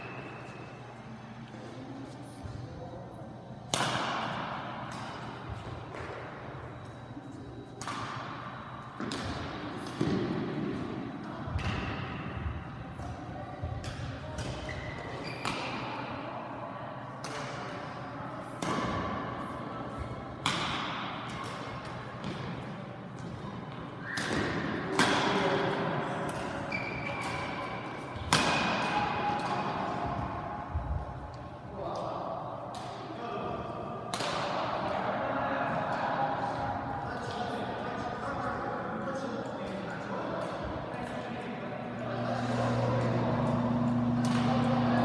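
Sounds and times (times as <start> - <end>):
rackets striking shuttlecock: 3.7 - 6.3, 7.7 - 10.8, 20.4 - 22.6, 24.1 - 30.3, 34.1 - 34.8, 42.0 - 45.0
shoe squeaks: 14.7 - 15.5, 26.7 - 27.8.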